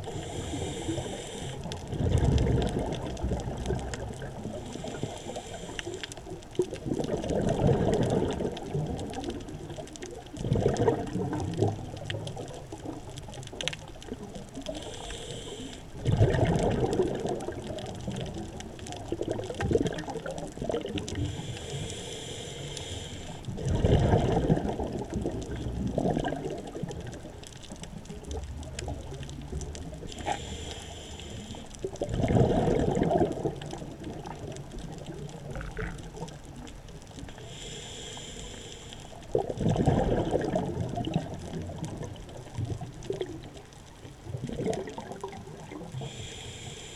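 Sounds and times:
regulator inhale hiss: 0.0 - 1.9, 4.4 - 6.2, 14.6 - 16.0, 21.1 - 23.5, 30.1 - 31.8, 37.3 - 39.4, 45.8 - 46.9
exhaled air bubbling: 0.0 - 46.9.

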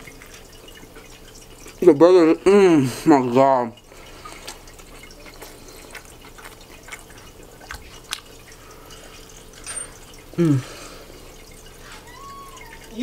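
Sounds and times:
wet chewing and mouth clicks: 4.1 - 9.4
person humming: 10.4 - 10.8.

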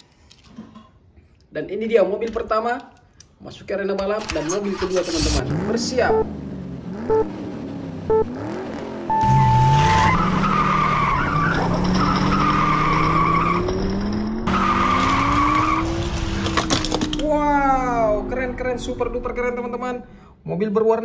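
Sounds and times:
race car engine revving: 4.7 - 19.2
race start beeps: 6.0 - 6.3, 7.0 - 7.4, 8.1 - 8.3, 9.1 - 12.4
tire squeal whine: 9.1 - 16.9.

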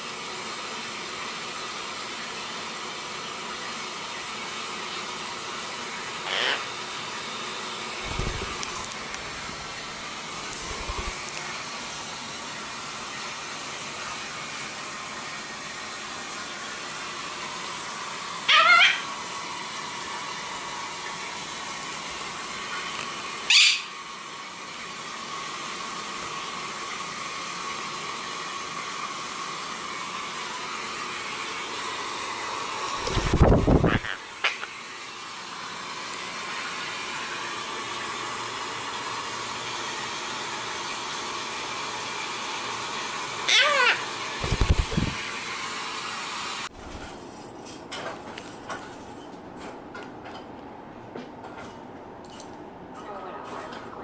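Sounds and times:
parrot calls rising in pitch: 6.2 - 6.7, 18.5 - 19.1, 23.5 - 23.9, 33.8 - 34.7, 43.4 - 44.1.

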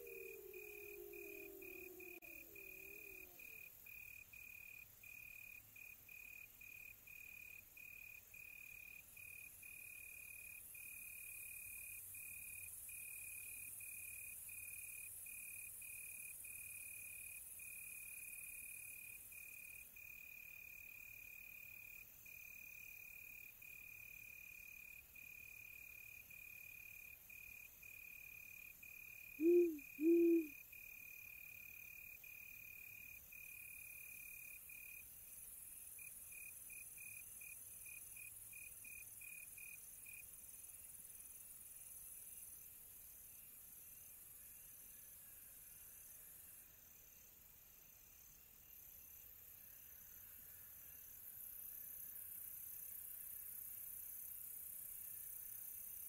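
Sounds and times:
owl hooting: 0.0 - 3.4, 29.4 - 30.6
cricket trilling: 0.0 - 3.7, 29.4 - 30.6.

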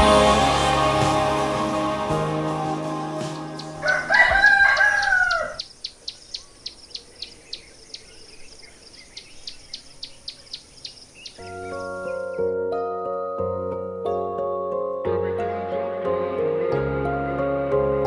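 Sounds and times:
background music: 0.0 - 5.4, 11.4 - 18.0
rooster crowing: 3.8 - 5.7.

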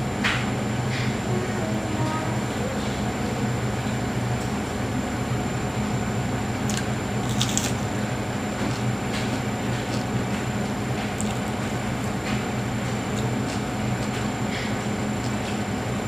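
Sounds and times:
electric fan humming: 0.0 - 16.0
biting and chewing sandwich: 6.6 - 15.6.

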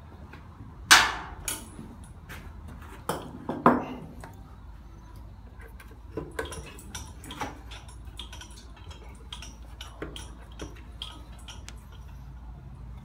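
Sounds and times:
hand tools clicking on metal: 6.2 - 12.3.

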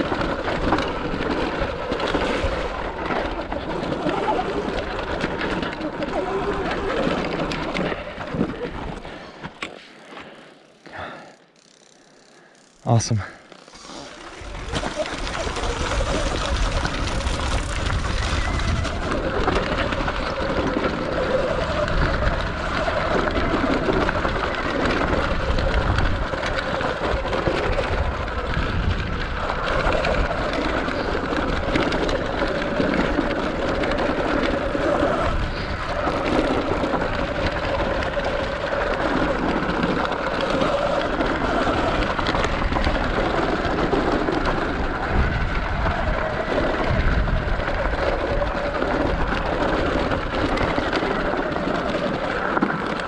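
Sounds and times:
electric motorbike drivetrain whine: 0.0 - 53.0
tyre and wind rush: 13.7 - 52.4.

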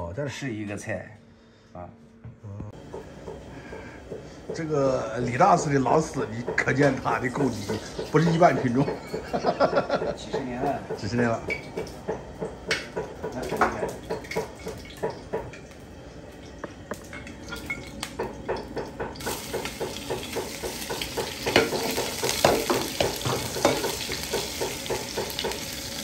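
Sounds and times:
food sizzling: 4.6 - 26.0
utensil scraping a wok: 19.2 - 26.0.

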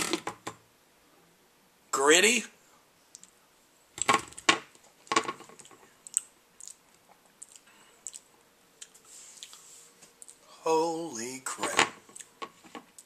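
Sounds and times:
lip and tongue clicks: 6.0 - 9.6.

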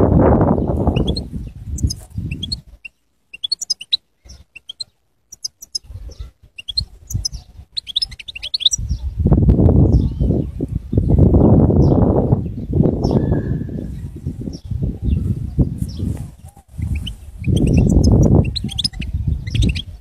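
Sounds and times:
wind rumble on microphone: 0.0 - 2.9, 5.8 - 20.0
goldfinch twittering song: 0.6 - 5.8, 6.6 - 8.8, 16.8 - 20.0.

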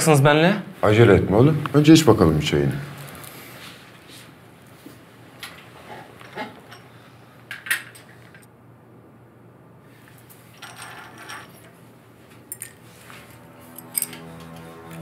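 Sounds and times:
soft rustle of movement: 3.0 - 6.3, 9.9 - 13.8.

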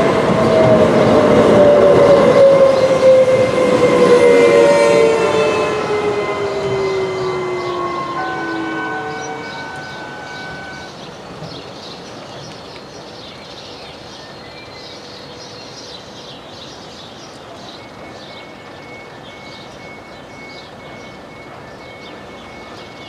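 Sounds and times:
train rumble: 0.0 - 23.0
birds chirping: 5.5 - 23.0
faint repeating high tone: 8.0 - 10.9.

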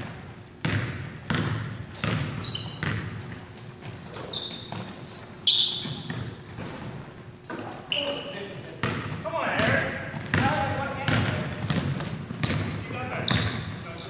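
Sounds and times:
basketball bouncing on wood floor: 0.0 - 4.0, 4.6 - 5.0, 5.7 - 7.0, 8.8 - 13.8
sneakers squeaking: 0.0 - 14.0.

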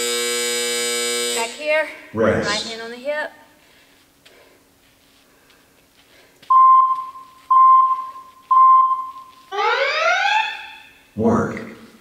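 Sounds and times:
short electronic beeps: 6.5 - 9.4.

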